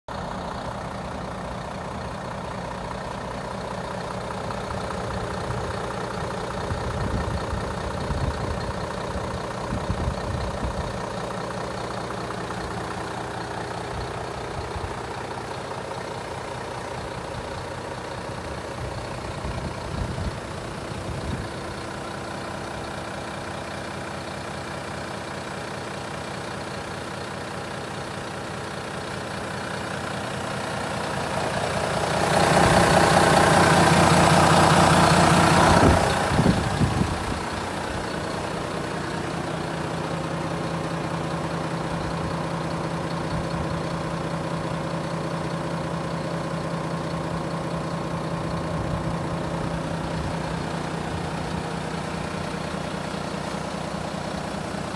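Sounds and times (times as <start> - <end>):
diesel truck engine idling: 0.1 - 54.9
low rumbles: 31.0 - 44.7.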